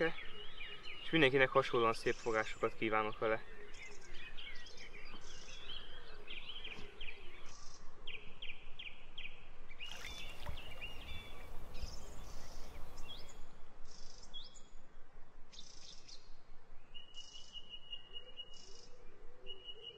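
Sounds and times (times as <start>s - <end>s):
small birds singing: 0.0s - 14.9s, 15.5s - 19.9s
outdoor background hiss: 8.7s - 17.9s.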